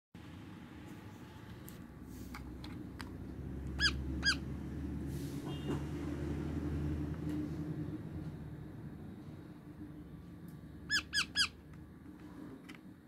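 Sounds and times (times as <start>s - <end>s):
parakeet chirps: 3.7s - 4.6s, 10.8s - 11.6s.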